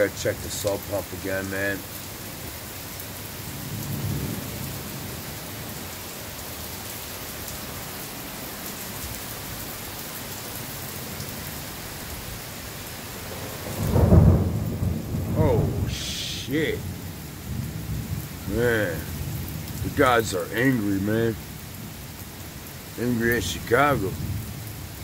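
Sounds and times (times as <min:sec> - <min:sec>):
heavy rain pouring: 0:00.0 - 0:25.0
thunder rumble: 0:03.5 - 0:05.3, 0:13.2 - 0:21.5.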